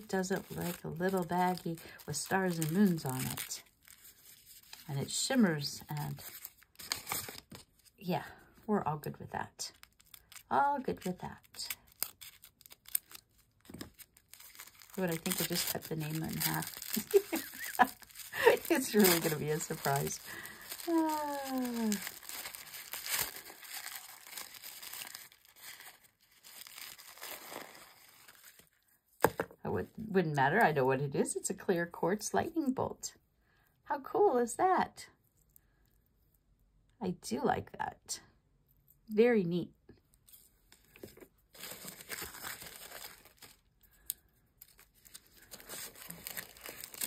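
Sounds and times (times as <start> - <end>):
tissue paper crinkling: 0.0 - 4.9, 5.9 - 8.0, 9.7 - 28.8, 40.3 - 43.7, 44.6 - 47.0.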